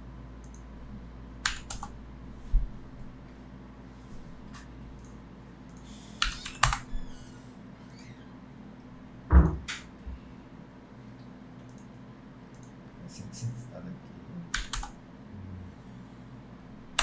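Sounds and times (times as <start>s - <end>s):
computer keys clicking: 0.4s - 0.7s, 1.4s - 2.0s, 4.6s - 7.0s, 11.2s - 12.8s, 14.5s - 15.0s.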